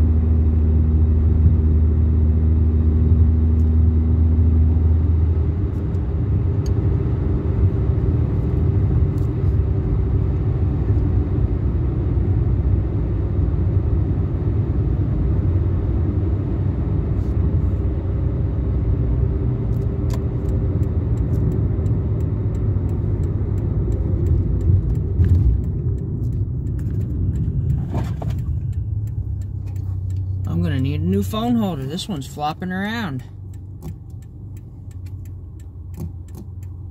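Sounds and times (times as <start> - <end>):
car engine drone: 0.0 - 36.9
road noise: 0.0 - 36.9
light regular ticking: 19.7 - 36.9.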